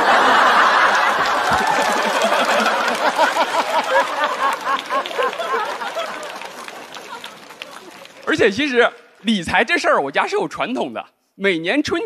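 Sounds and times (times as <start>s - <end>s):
audience laughing: 0.0s - 8.3s
audience clapping: 0.0s - 9.4s.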